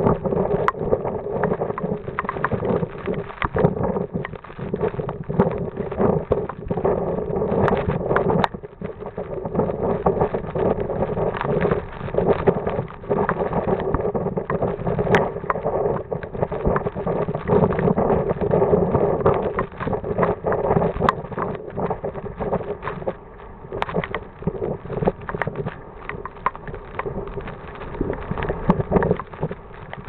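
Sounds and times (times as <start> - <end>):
gusty wind buffeting microphone: 0.0 - 30.0
scattered crackles: 0.0 - 30.0.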